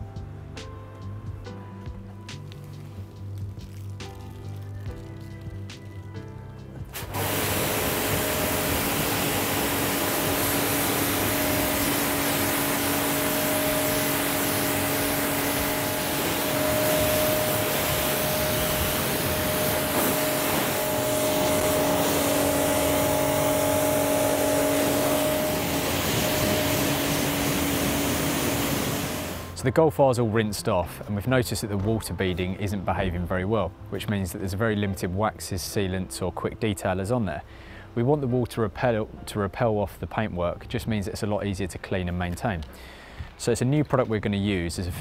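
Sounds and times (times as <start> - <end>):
pressure washer pump hum: 4.0 - 29.6
water jet hissing on car: 6.9 - 29.6.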